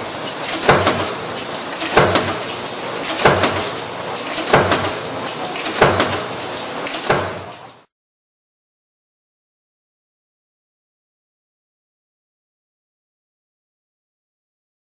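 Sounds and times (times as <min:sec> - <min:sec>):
steady machine hum: 0:00.0 - 0:07.9
stamping press impacts: 0:00.2 - 0:07.8.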